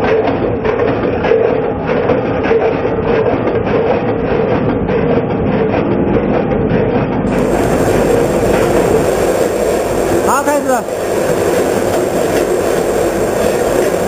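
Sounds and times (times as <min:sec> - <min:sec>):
machine humming: 0:07.2 - 0:14.0.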